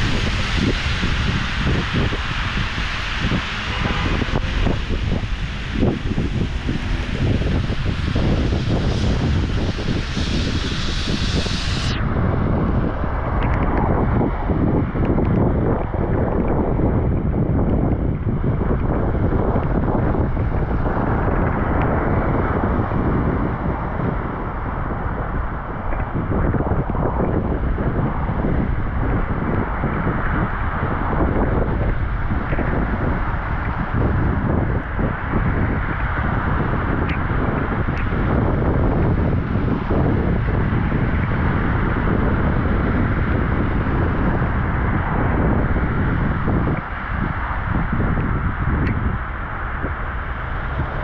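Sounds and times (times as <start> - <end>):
rain hissing on wet street: 0.0 - 11.5
car tyres on wet road: 0.0 - 51.0
wind buffeting microphone: 0.0 - 51.0.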